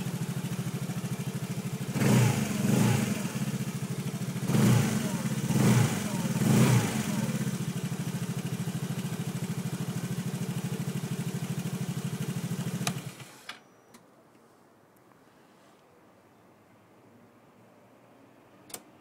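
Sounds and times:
scooter engine idling: 0:00.0 - 0:13.5.

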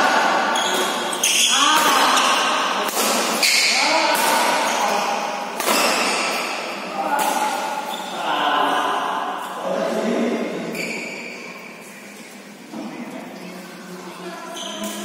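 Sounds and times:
racket hitting shuttlecock: 0:00.6 - 0:07.9.

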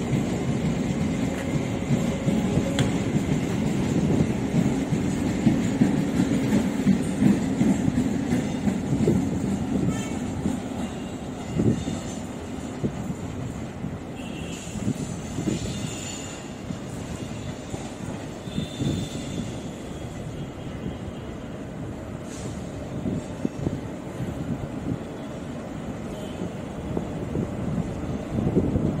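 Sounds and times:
wheels clacking over rail joints: 0:00.0 - 0:13.6
train coaches rumbling past: 0:00.0 - 0:29.0.

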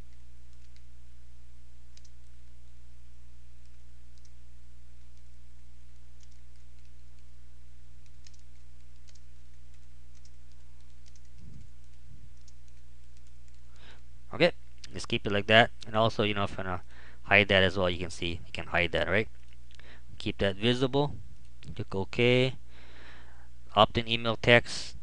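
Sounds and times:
low electrical hum: 0:00.0 - 0:25.0
keyboard keys clicking: 0:06.2 - 0:07.3, 0:08.0 - 0:13.6.

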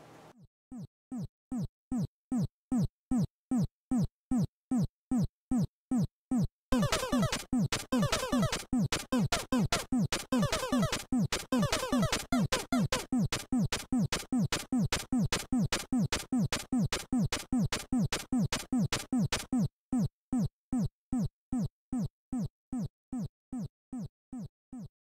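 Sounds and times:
electronic music with kick drum: 0:06.8 - 0:19.5.

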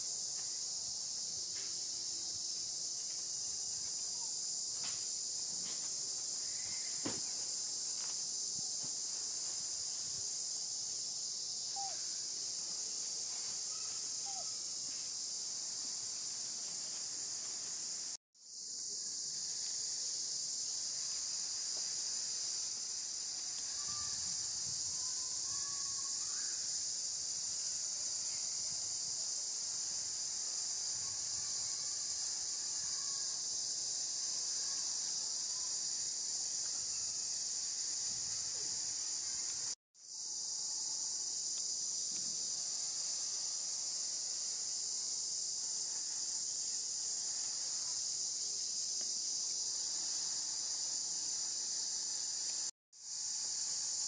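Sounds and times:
high-pitched insect chorus: 0:00.0 - 0:54.0
faint chirps: 0:11.4 - 0:15.2, 0:23.3 - 0:26.9.

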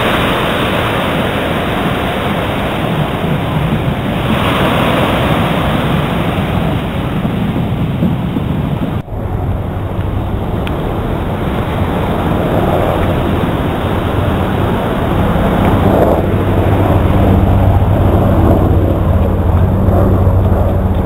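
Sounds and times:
water washing: 0:00.0 - 0:21.0
wind on microphone: 0:00.0 - 0:21.0
low steady hum: 0:07.6 - 0:21.0.

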